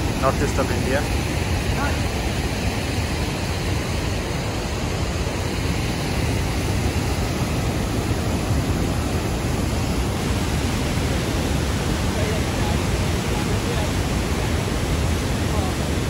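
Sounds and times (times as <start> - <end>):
water rushing: 0.0 - 16.0.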